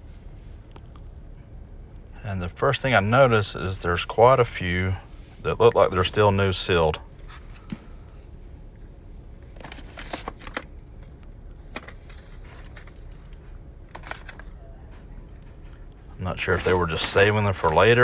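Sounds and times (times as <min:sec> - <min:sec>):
low steady hum: 0:00.0 - 0:18.0
plastic clicks and rustling: 0:09.5 - 0:14.6.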